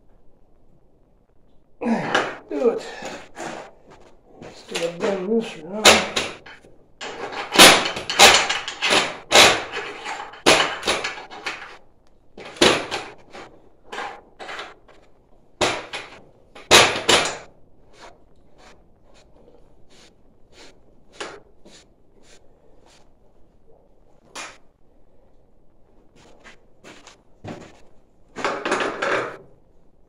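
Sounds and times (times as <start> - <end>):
metal pipe fittings clicking and scraping: 4.5 - 11.8.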